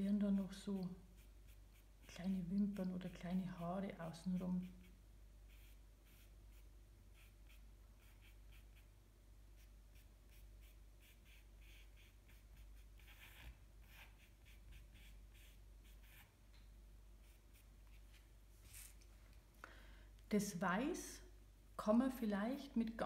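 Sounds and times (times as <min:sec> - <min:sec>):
charcoal scratching on paper: 0:00.4 - 0:09.0, 0:09.6 - 0:16.4, 0:17.2 - 0:19.0.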